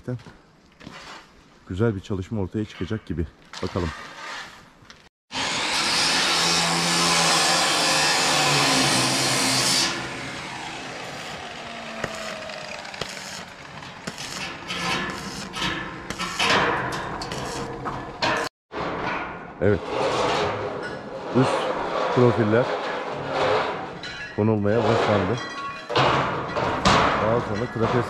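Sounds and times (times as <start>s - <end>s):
power cutting tool running: 5.3s - 13.7s.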